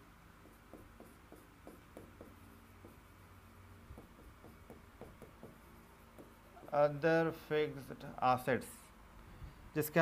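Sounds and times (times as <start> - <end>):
low room hum: 0.0 - 10.0
pen ticking on a board: 0.4 - 3.0, 3.9 - 6.8.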